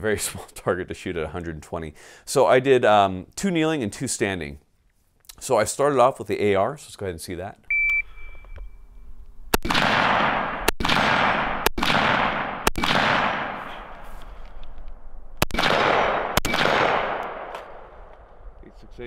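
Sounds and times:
rolling echo: 7.8s - 18.8s
rifle shots: 9.5s - 14.1s, 15.3s - 18.4s.

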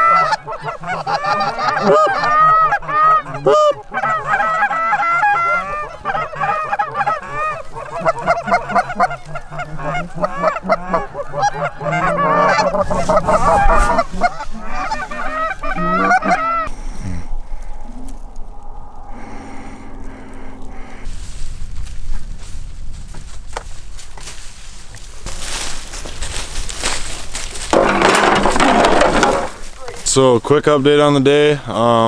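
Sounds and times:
geese honking: 0.0s - 21.4s, 26.8s - 30.0s.

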